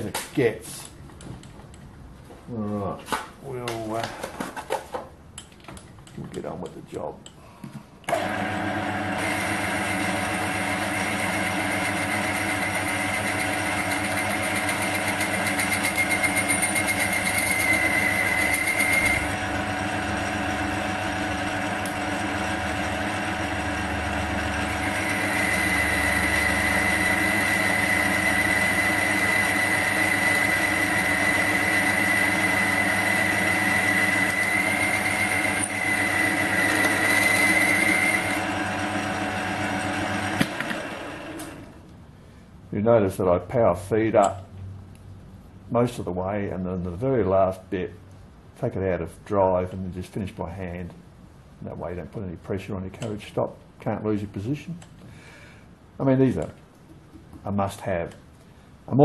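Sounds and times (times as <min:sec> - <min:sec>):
boring bar cutting whine: 0:08.1 - 0:41.8
metal lathe humming: 0:08.1 - 0:41.8.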